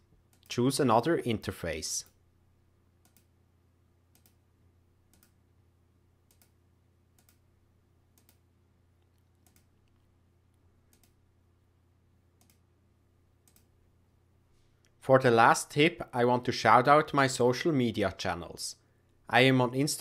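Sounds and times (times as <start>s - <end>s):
low steady hum: 0.0s - 20.0s
computer mouse clicks: 3.0s - 3.3s, 4.1s - 4.4s, 5.1s - 5.4s, 6.2s - 7.4s, 8.1s - 8.4s, 9.0s - 10.1s, 10.9s - 11.2s, 12.4s - 12.6s, 13.4s - 13.7s.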